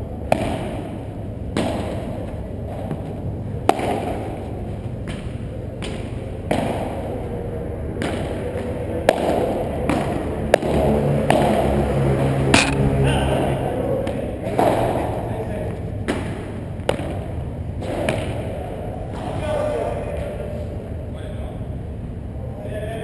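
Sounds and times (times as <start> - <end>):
padel ball hit by rackets: 0.3 - 7.0, 9.1 - 11.8, 12.5 - 12.9
ball bouncing off court: 12.6 - 12.9.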